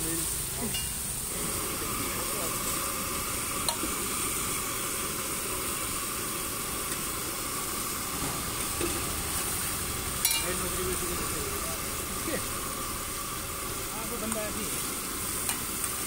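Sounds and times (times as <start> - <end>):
vegetables sizzling on a griddle: 0.0 - 16.0.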